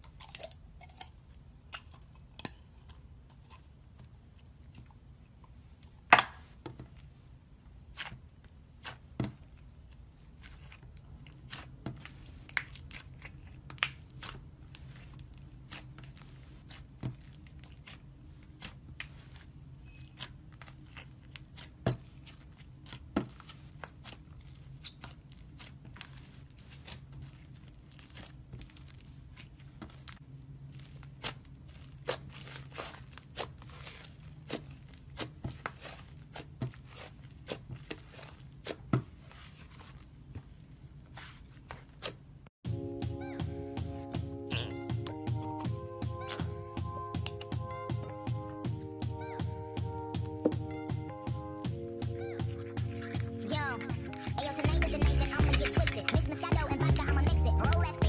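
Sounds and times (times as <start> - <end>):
slime crackling and popping: 10.4 - 19.4.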